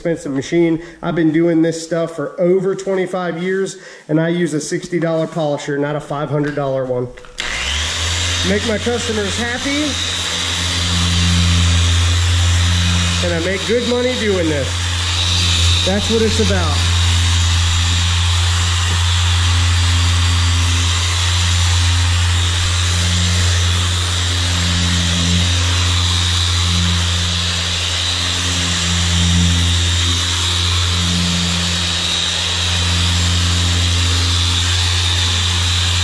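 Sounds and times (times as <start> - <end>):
polisher running: 7.3 - 36.0.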